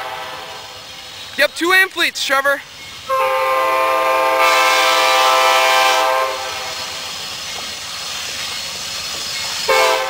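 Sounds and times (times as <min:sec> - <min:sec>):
locomotive air horn chord: 0:00.0 - 0:00.8, 0:03.1 - 0:06.9, 0:09.7 - 0:10.0
train running noise: 0:00.0 - 0:10.0.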